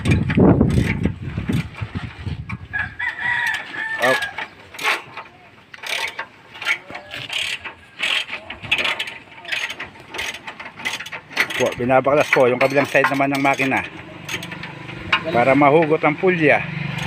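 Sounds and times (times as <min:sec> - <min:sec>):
wrench clicking on bolts: 0:03.4 - 0:16.0.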